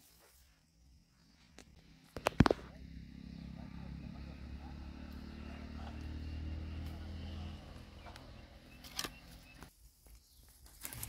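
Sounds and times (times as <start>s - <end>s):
vehicle engine humming: 1.6s - 9.7s.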